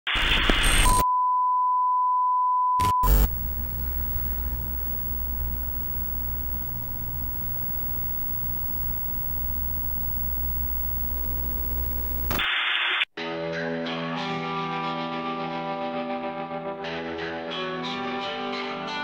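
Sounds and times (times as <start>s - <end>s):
tv static: 0.0s - 1.0s, 2.8s - 13.1s
steady test tone beep: 0.8s - 12.3s
low steady hum: 3.0s - 12.4s.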